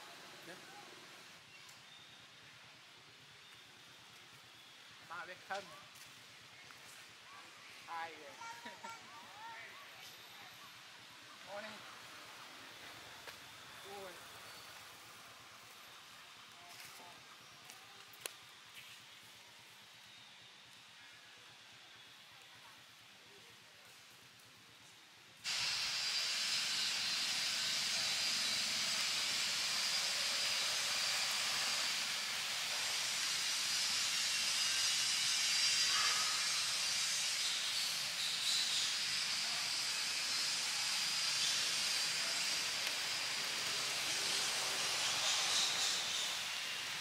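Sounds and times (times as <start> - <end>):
steady high hiss: 0.0 - 47.0.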